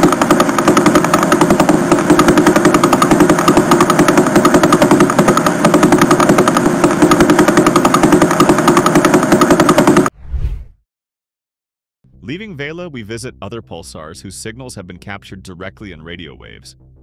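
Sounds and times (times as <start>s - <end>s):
fast regular ticking: 0.0s - 10.1s
steady hum: 0.0s - 10.1s.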